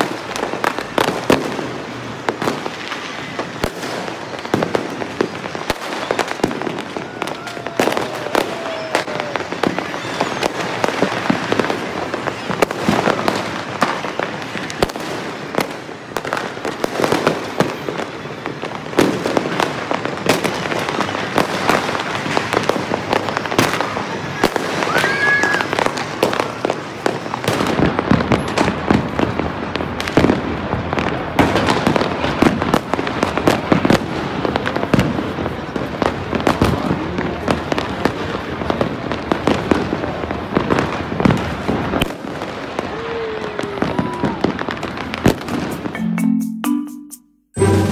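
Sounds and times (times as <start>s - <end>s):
fireworks and firecrackers bangs: 0.0s - 46.0s
rising firework whistle: 2.4s - 18.2s, 20.8s - 28.7s, 42.4s - 46.0s.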